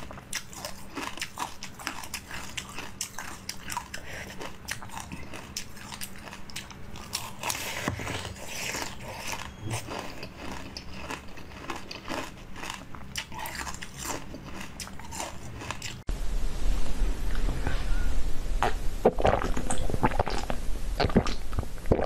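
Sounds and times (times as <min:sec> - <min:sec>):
crunchy bites and chewing: 0:00.0 - 0:16.1
low hum: 0:15.4 - 0:22.0.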